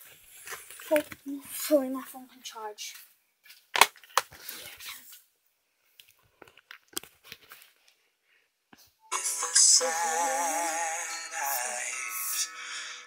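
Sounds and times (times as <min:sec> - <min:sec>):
karaoke backing track: 0:09.0 - 0:13.0.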